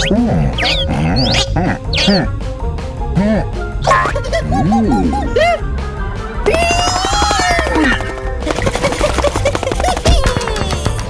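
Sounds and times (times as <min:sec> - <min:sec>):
cartoon pitched tone: 0:00.0 - 0:02.3.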